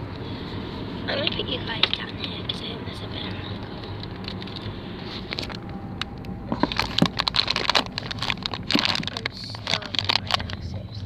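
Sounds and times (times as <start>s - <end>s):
car cabin road and engine rumble: 0.0s - 11.0s
phone handling clicks and rustles: 3.9s - 10.8s.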